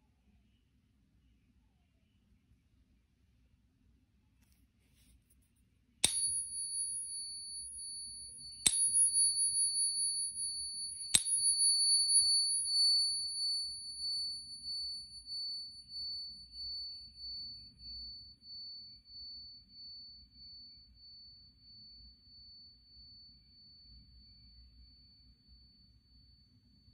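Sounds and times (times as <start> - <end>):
coin tapped ringing: 6.0 - 15.6.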